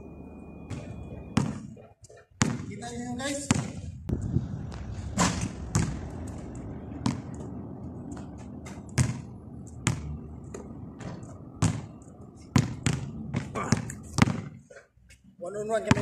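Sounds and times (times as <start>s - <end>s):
basketball bouncing on concrete: 0.7s - 1.8s, 2.4s - 6.1s, 7.0s - 14.6s.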